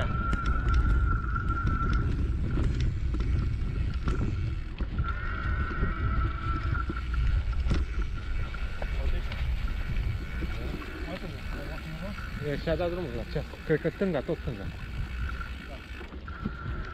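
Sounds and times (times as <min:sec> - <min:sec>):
thin high whine: 0:00.0 - 0:02.8
wind on microphone: 0:00.0 - 0:13.6
bike rattling over bumps: 0:00.0 - 0:16.9
tyres on dirt: 0:00.0 - 0:16.9.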